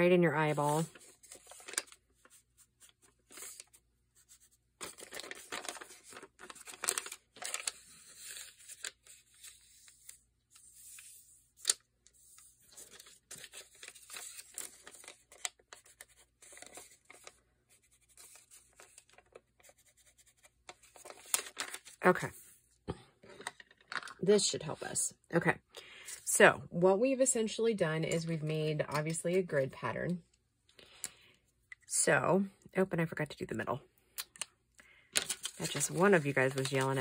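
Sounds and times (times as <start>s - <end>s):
paper crinkling and scraping: 0.4s - 22.6s, 35.1s - 37.0s.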